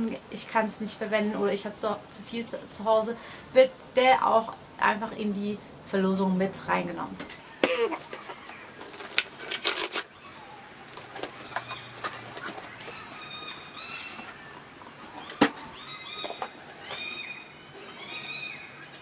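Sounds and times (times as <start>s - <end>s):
birds chirping: 6.2s - 19.0s.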